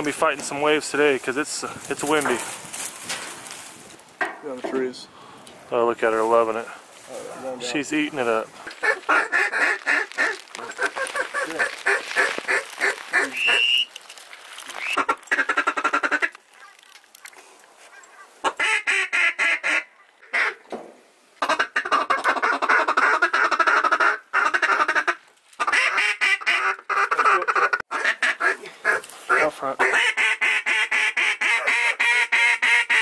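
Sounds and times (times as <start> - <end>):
duck calls quacking: 8.6 - 13.8, 14.8 - 16.4, 18.0 - 20.6, 21.4 - 33.0.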